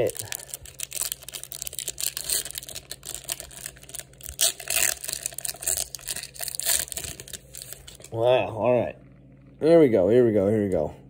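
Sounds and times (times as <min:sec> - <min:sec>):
foil wrapper tearing and crinkling: 0:00.0 - 0:08.1.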